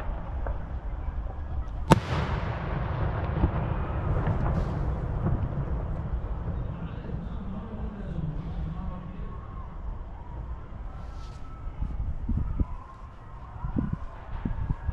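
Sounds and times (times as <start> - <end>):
low background noise: 0.0 - 14.9
faint firework pops: 1.6 - 7.4
firework shell boom: 1.9 - 6.9.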